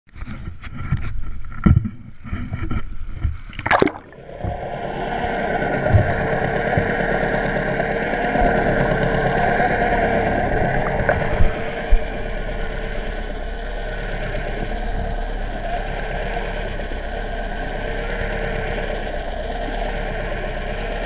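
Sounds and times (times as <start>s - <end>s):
constant hum: 0.2s - 21.0s
muffled underwater rush: 1.2s - 21.0s
splash into water: 3.5s - 4.3s.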